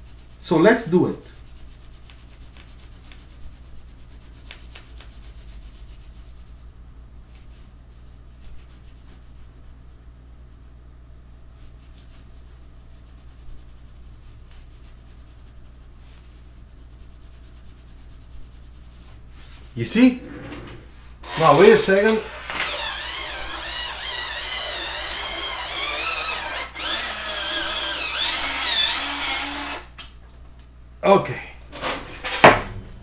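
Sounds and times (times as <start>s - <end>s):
steady low hum: 0.0s - 28.9s, 29.7s - 33.0s
drawing tool scratching on paper: 21.2s - 29.8s.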